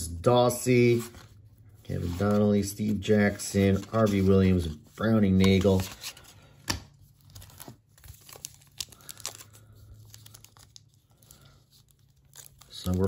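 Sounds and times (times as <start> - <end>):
wrapper crinkling: 7.2 - 13.0.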